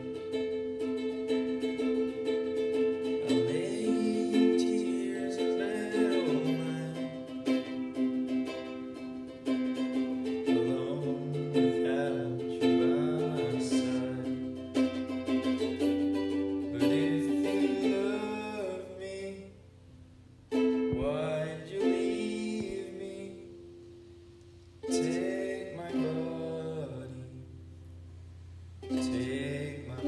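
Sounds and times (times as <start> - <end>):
ukulele strummed slowly: 0.0 - 30.0
man singing: 3.0 - 8.7, 9.7 - 19.6, 20.8 - 23.7, 24.8 - 27.6, 28.8 - 30.0.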